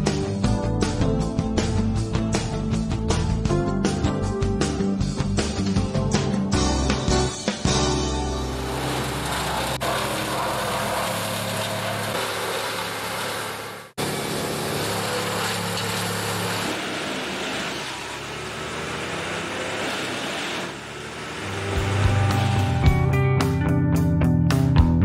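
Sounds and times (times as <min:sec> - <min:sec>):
machinery engine hum: 0:08.0 - 0:23.2.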